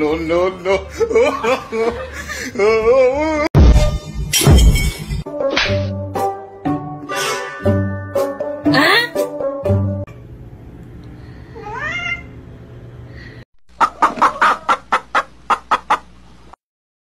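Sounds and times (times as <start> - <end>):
cat meowing: 11.6 - 12.4
chickens clucking: 13.7 - 16.2.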